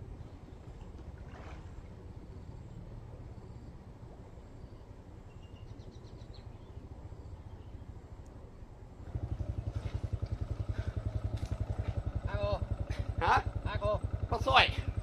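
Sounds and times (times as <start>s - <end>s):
small engine running: 9.0s - 15.0s.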